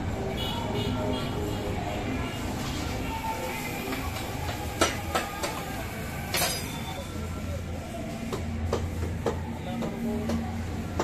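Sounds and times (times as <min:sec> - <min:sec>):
metal tools knocking and clinking: 0:06.3 - 0:06.9.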